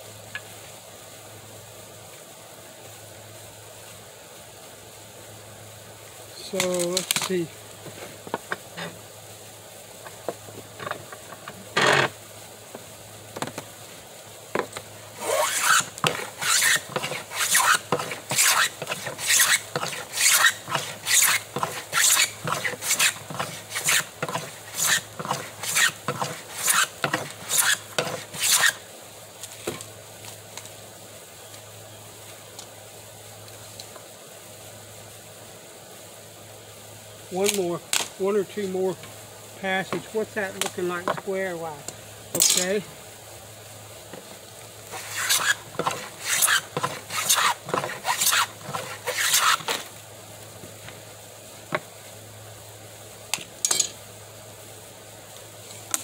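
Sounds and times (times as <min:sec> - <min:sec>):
hand plane scraping wood: 0:15.2 - 0:28.8, 0:44.9 - 0:49.8.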